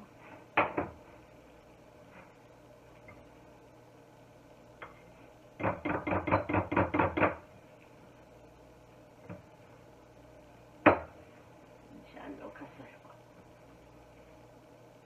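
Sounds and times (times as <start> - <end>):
utensil knocking glass bowl: 5.6 - 7.4.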